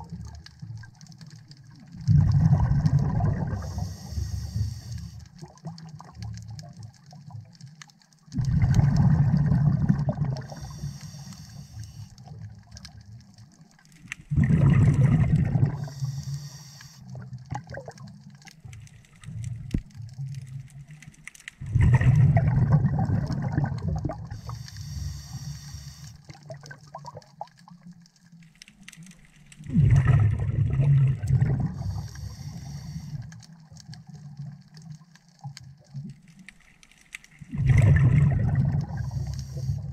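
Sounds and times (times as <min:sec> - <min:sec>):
bubbling underwater exhalations: 0:01.9 - 0:03.8, 0:08.3 - 0:10.8, 0:14.2 - 0:16.0, 0:21.6 - 0:24.5, 0:29.7 - 0:33.1, 0:37.4 - 0:39.9
regulator hissing: 0:15.8 - 0:17.0, 0:31.9 - 0:33.2.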